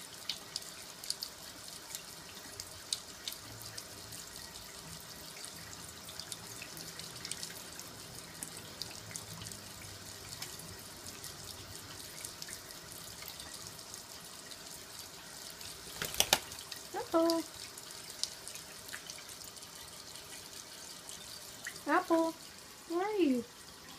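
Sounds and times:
faucet water splashing into sink: 0.0s - 23.9s
drip-like ticks: 0.1s - 21.9s.

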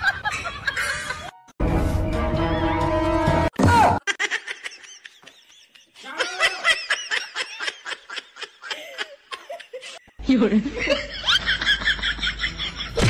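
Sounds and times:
background music: 0.7s - 4.0s, 10.3s - 13.0s.

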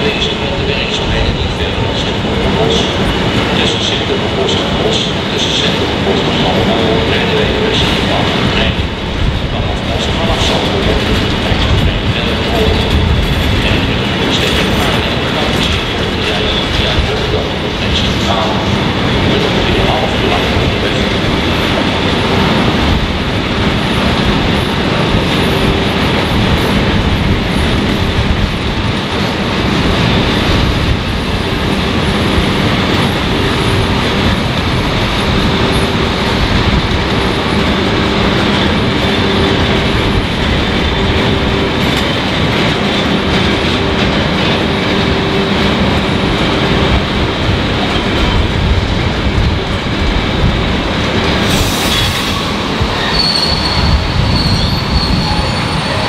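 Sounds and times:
train wheels rumbling on rails: 0.0s - 56.0s
high wheel squeal: 51.5s - 56.0s.

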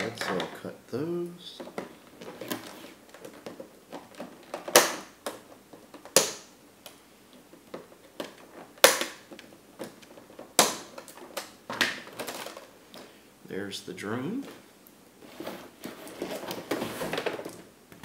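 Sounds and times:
plastic packaging rustling: 1.5s - 6.2s, 7.3s - 13.2s, 14.2s - 17.7s.

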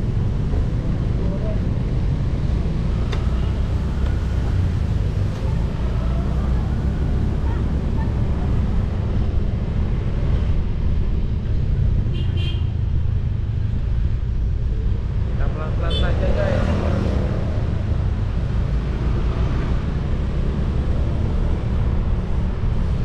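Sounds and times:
vehicle rumble on road: 0.0s - 23.0s.

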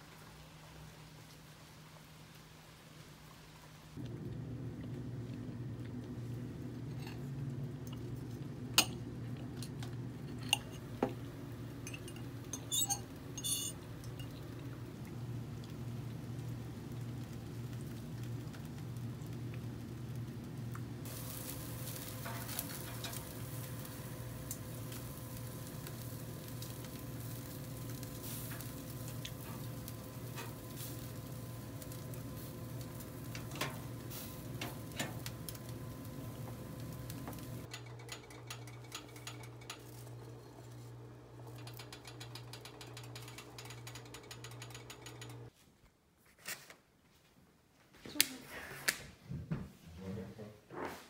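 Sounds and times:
food sizzling on grill: 10.6s - 45.2s.

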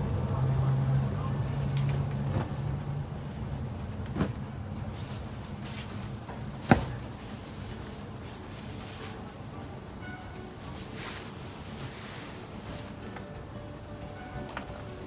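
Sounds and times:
cloth rustling: 4.1s - 9.8s.

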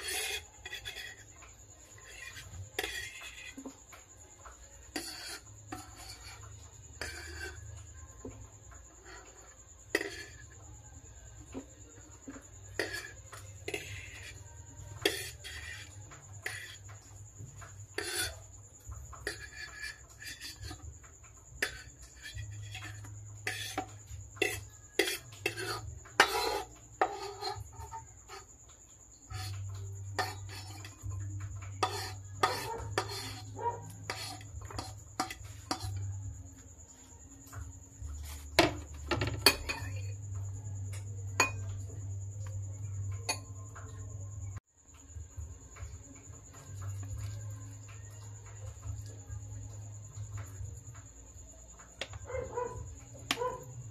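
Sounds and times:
fork scraping a wooden board: 0.0s - 3.8s, 4.4s - 8.0s, 9.0s - 10.6s, 12.2s - 21.0s, 21.6s - 28.5s, 29.2s - 36.1s, 38.1s - 40.2s
fork clinking: 21.6s - 28.0s, 41.4s - 41.7s
fork clinking on ceramic bowl: 31.8s - 36.0s, 41.4s - 41.7s.

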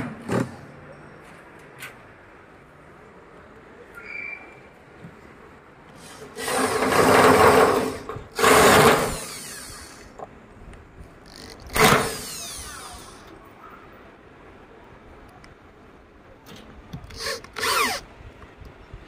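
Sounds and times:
cordless drill driving screws: 6.0s - 10.1s, 11.2s - 13.3s, 17.1s - 18.0s.

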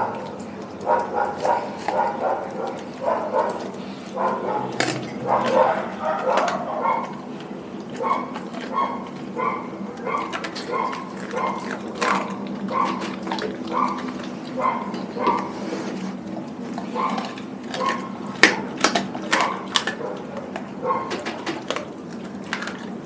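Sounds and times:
dog wet chewing and smacking: 0.0s - 23.0s
sharp bone crunches: 17.1s - 20.0s.

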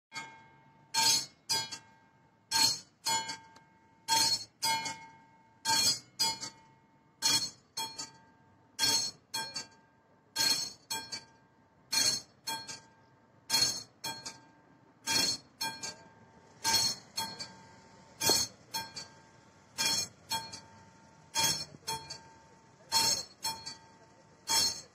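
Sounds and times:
level crossing bell ringing: 16.6s - 19.2s, 19.8s - 23.8s, 24.5s - 24.9s.

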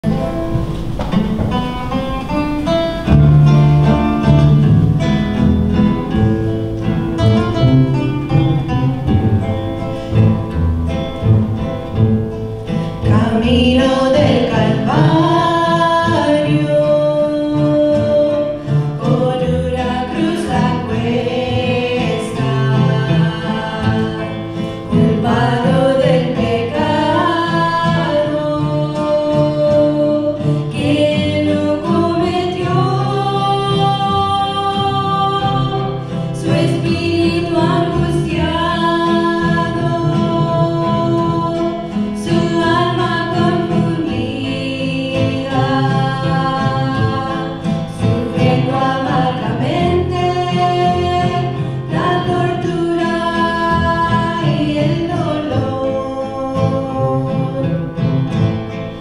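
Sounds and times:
acoustic guitar: 0.0s - 59.0s
women singing together: 12.9s - 58.1s.

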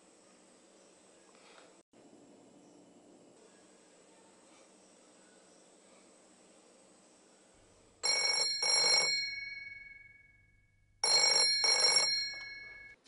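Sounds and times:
telephone bell ringing: 8.0s - 13.0s.

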